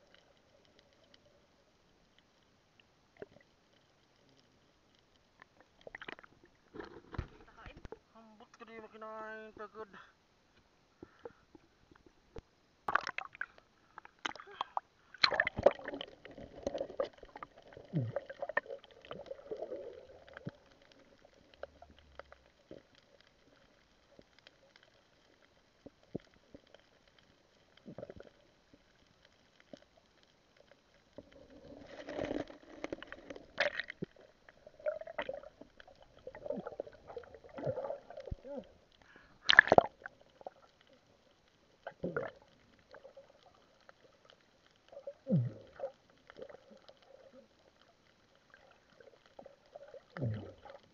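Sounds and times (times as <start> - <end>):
underwater bubbling: 0.0 - 8.1, 11.0 - 50.9
muffled underwater clicks and knocks: 5.4 - 8.0.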